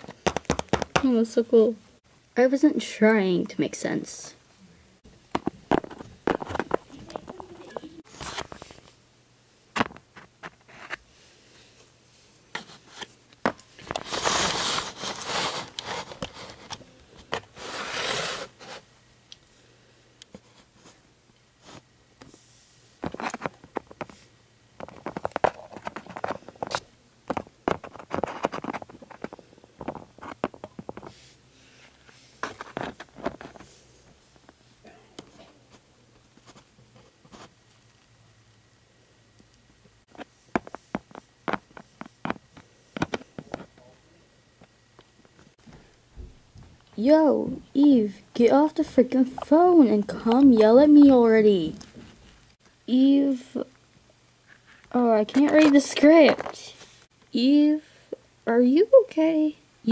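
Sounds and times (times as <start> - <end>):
rustling: 10.1 - 18.9.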